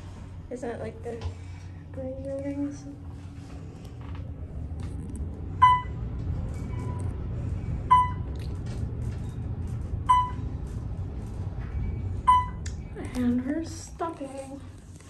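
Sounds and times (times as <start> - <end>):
elevator ride rumble: 0.0 - 15.0
short electronic beep: 12.3 - 12.6.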